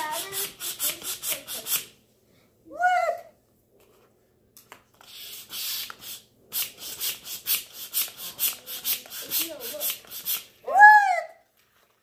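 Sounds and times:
manual air pump strokes: 0:00.0 - 0:02.0, 0:05.0 - 0:10.6.

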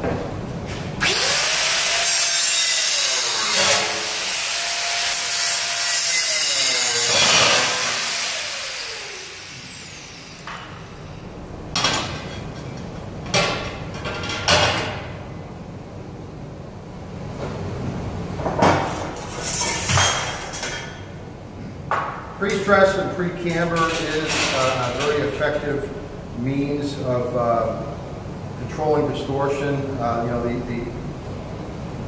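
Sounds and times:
angle grinder grinding metal: 0:01.0 - 0:10.9.

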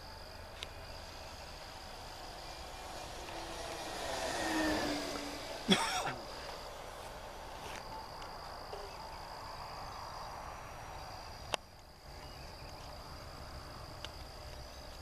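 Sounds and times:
distant model plane motor: 0:00.0 - 0:09.1
insects trilling: 0:00.0 - 0:15.0.

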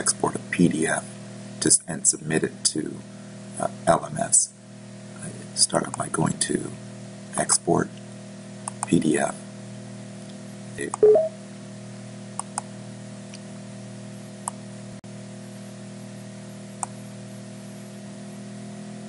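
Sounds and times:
low electrical hum and hiss: 0:00.0 - 0:18.7
computer mouse clicking: 0:08.7 - 0:08.9, 0:12.4 - 0:12.7
loud tone: 0:11.0 - 0:11.4.

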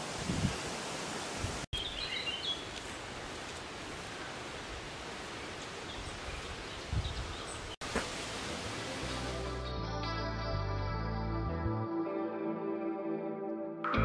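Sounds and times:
bird chirps: 0:01.8 - 0:02.8.

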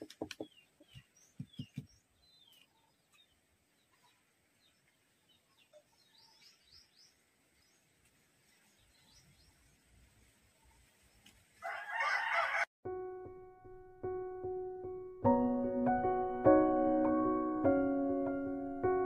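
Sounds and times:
soft knocks: 0:00.0 - 0:01.9
small birds chirping: 0:00.0 - 0:11.6.

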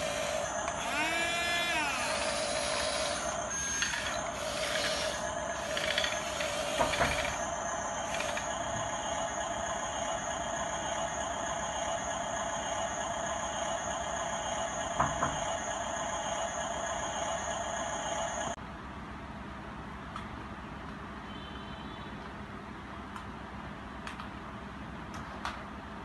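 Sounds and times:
toy bulldozer motors whining: 0:00.0 - 0:18.6.

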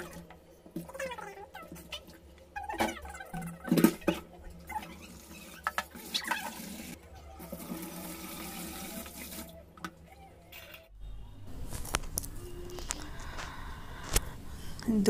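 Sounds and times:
water rushing from tap: 0:03.7 - 0:09.6.

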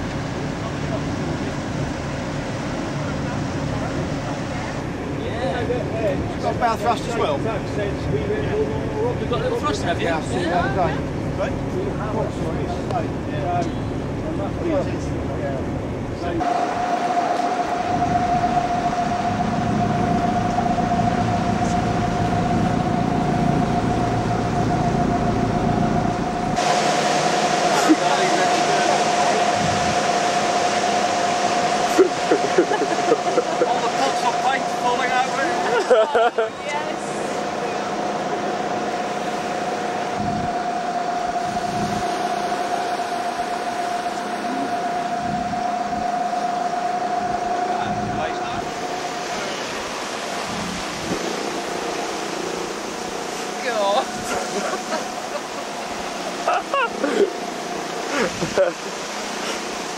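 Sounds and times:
boat engine drone: 0:00.0 - 0:59.9
high engine whine: 0:00.0 - 0:59.9
wind buffeting microphone: 0:16.4 - 0:59.9.

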